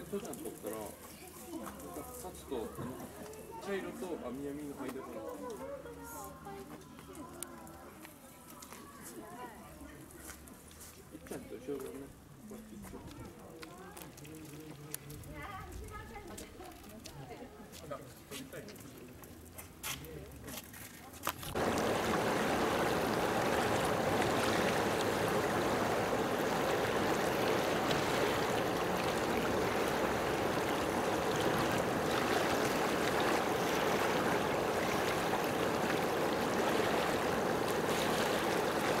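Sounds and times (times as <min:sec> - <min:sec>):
water rushing: 0:21.4 - 0:39.0.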